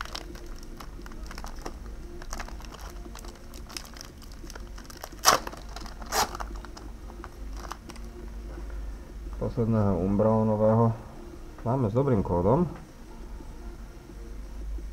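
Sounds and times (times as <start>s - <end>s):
foil wrapper crinkling: 0.0s - 8.1s
foil wrapper tearing: 0.0s - 8.1s.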